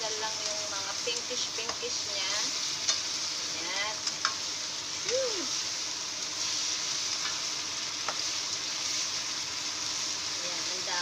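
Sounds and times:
meat and onion sizzling in pan: 0:00.0 - 0:11.0.

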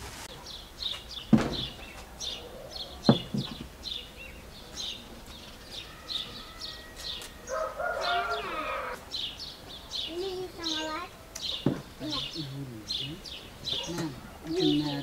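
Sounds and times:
small bird chirping: 0:00.3 - 0:15.0
sharp knocks: 0:01.3 - 0:02.0, 0:03.0 - 0:03.8, 0:11.6 - 0:11.9.

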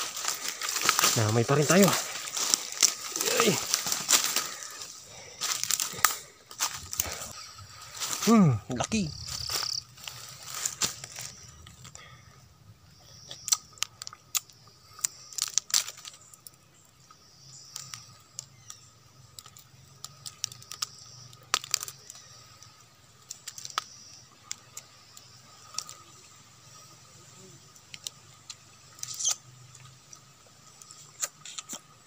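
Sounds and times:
bee nest crackling and snapping: 0:00.0 - 0:12.0, 0:13.0 - 0:26.9, 0:27.6 - 0:32.0.

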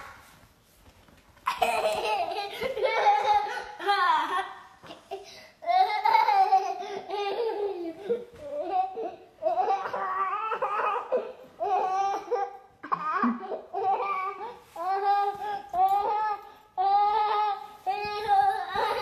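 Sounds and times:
toddler giggling: 0:01.5 - 0:11.2, 0:18.1 - 0:19.0.

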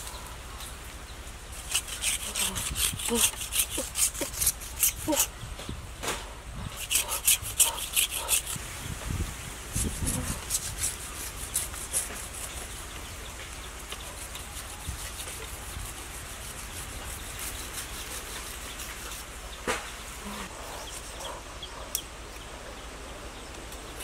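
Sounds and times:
vine scraping against knife blade: 0:01.6 - 0:05.3, 0:06.7 - 0:08.6, 0:09.7 - 0:12.6.

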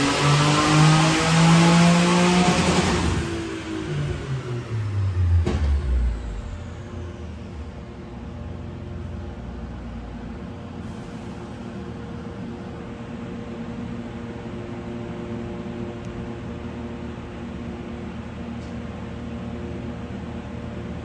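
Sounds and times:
mechanical hum with tones: 0:02.5 - 0:21.0
low rumble: 0:03.7 - 0:10.8.

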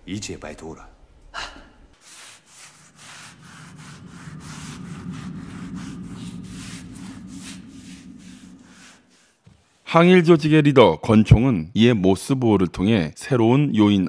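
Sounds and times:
low steady hum: 0:00.0 - 0:11.7
rhythmic rasping strokes: 0:02.0 - 0:10.4.

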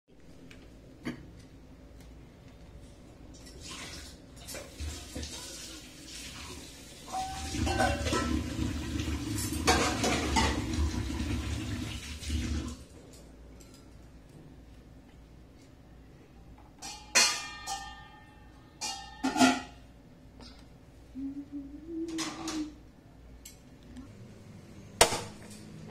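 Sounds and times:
water running: 0:03.4 - 0:13.0.

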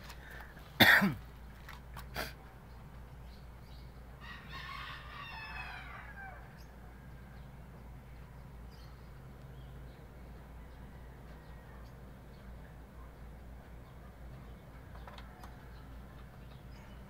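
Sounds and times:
rooster crowing: 0:04.2 - 0:07.1.

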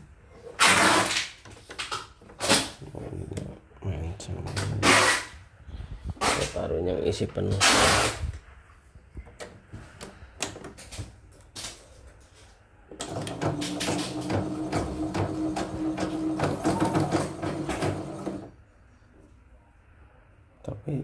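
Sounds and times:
embroidery machine stitching: 0:13.0 - 0:18.5.

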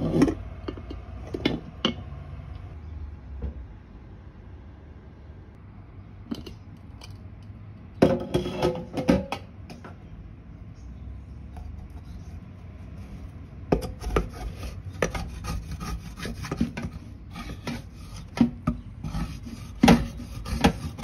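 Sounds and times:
spatula scraping a steel pan: 0:00.0 - 0:00.4, 0:11.8 - 0:21.0.

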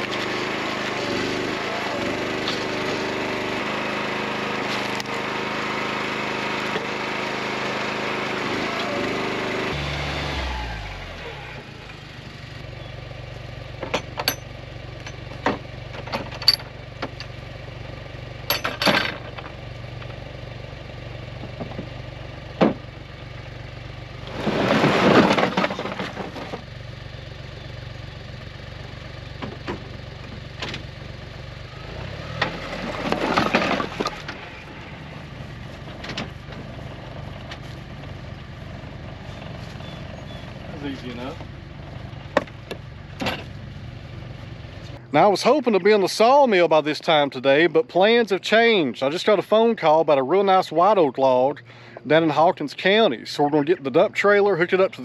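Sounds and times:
utility vehicle engine idling: 0:00.0 - 0:55.0
firewood pieces knocking: 0:24.3 - 0:26.6
firewood clattering sliding out: 0:24.3 - 0:26.7, 0:32.4 - 0:34.6.

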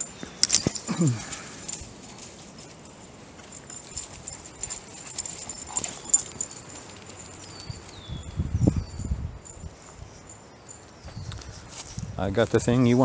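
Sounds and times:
footsteps crunching dry leaves: 0:10.8 - 0:13.0.

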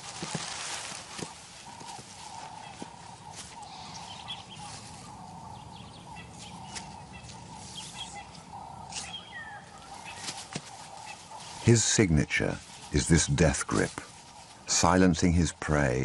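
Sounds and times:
bird chirps: 0:01.7 - 0:11.7.

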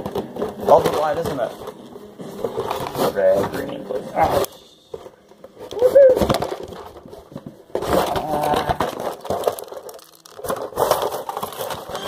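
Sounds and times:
scraping and rustling handling noise: 0:00.0 - 0:12.0.

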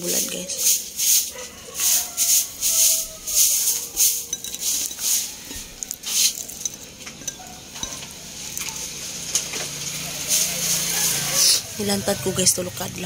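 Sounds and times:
fried fish crunching: 0:03.8 - 0:11.0.

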